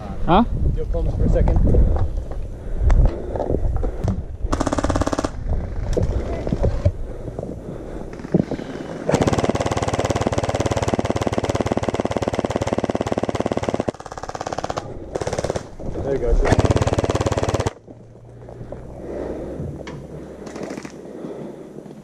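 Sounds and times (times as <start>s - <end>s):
gel blaster rapid fire: 9.1s - 15.6s, 16.5s - 17.8s.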